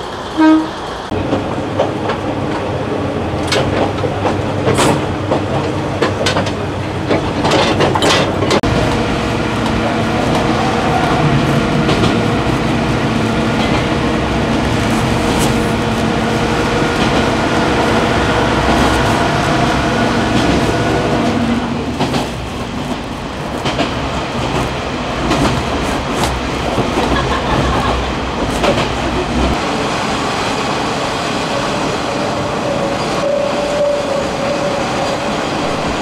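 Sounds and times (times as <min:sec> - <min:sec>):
rail joint clicks: 0:00.0 - 0:29.6
diesel railcar engine drone: 0:00.0 - 0:36.0
train wheel rumble: 0:00.0 - 0:36.0
train brake squeal: 0:32.7 - 0:35.1.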